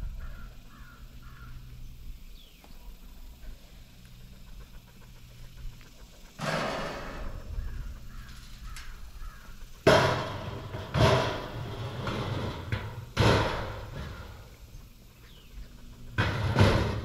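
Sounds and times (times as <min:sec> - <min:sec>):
corn clattering into metal hopper: 0:09.8 - 0:14.5, 0:16.2 - 0:17.0.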